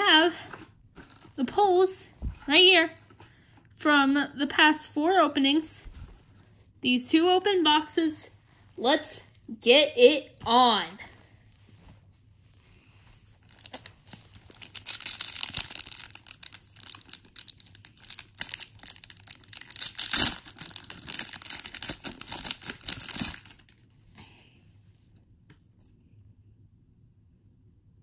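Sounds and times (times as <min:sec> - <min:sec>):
foil wrapper tearing and crinkling: 0:13.2 - 0:23.8.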